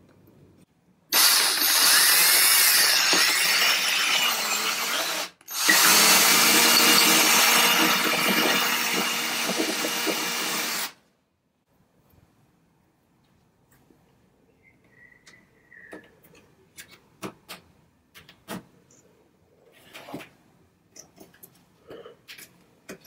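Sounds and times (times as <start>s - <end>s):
cordless drill boring into wood: 1.1s - 11.0s.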